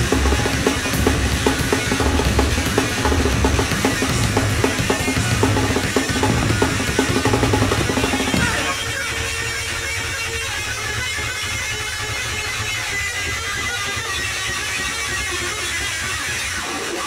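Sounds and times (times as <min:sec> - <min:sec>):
drum kit: 0:00.0 - 0:09.0
distorted electric bass guitar: 0:00.0 - 0:17.0.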